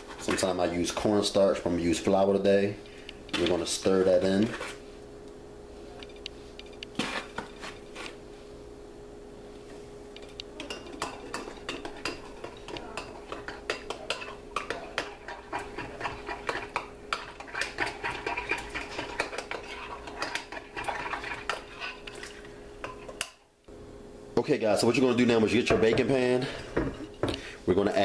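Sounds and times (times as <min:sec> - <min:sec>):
utensil stirring in glass cup: 0:10.6 - 0:23.2.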